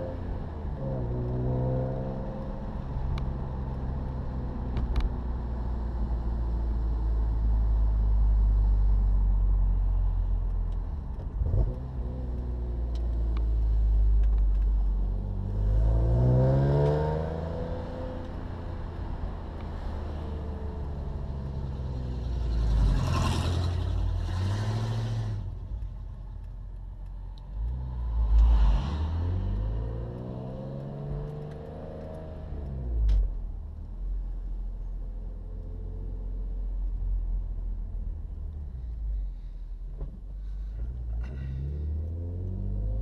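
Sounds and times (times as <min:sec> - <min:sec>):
car engine revving in cabin: 0:00.0 - 0:05.1, 0:10.9 - 0:25.5, 0:27.4 - 0:33.4, 0:41.0 - 0:43.0.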